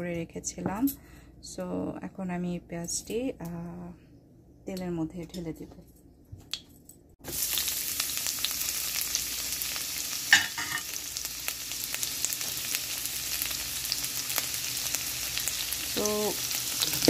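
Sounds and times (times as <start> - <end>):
onion sizzling in oil: 7.2 - 17.0.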